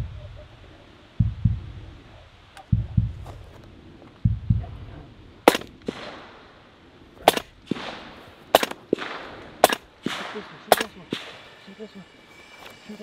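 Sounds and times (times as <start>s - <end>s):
gunshots with echo: 5.4s - 6.6s, 7.2s - 11.6s.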